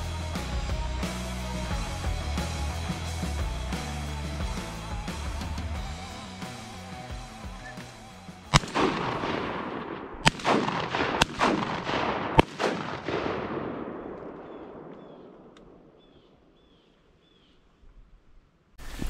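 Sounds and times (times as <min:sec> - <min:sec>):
long rolling echo: 0:00.0 - 0:16.6
shotgun shots: 0:08.5 - 0:16.5.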